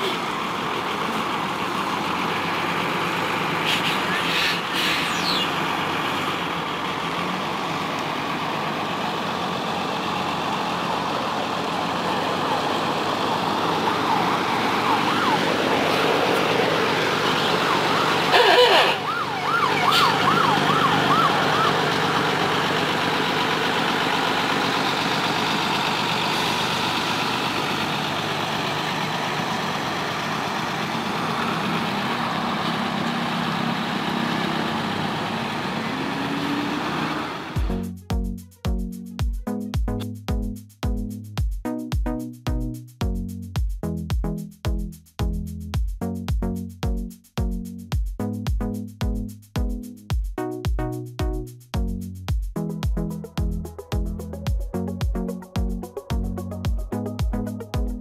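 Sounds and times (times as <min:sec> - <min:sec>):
diesel engines running: 0:00.0 - 0:41.4, 0:51.2 - 0:58.0
warbling siren-like tone: 0:13.8 - 0:22.3.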